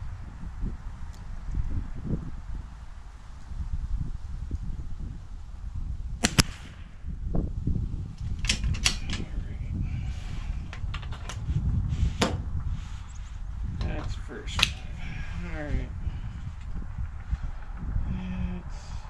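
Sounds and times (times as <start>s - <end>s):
wind rumble on microphone: 0.0s - 19.0s
gunshot cracks: 6.2s - 7.0s.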